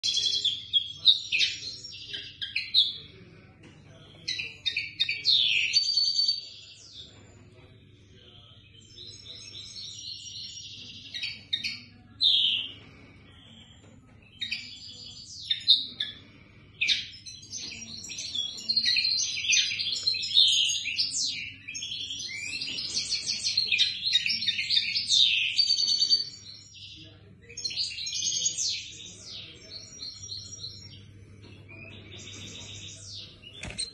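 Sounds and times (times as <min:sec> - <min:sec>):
finches chirping and trilling: 0:00.0 - 0:33.9.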